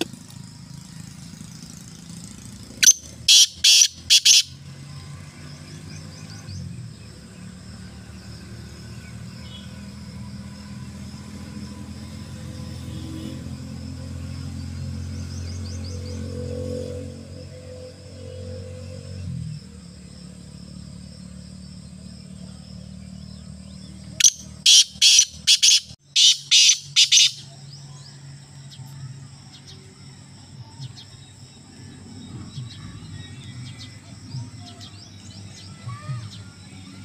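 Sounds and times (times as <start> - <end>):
bird calling harsh grating notes: 2.8 - 4.5, 24.2 - 27.4.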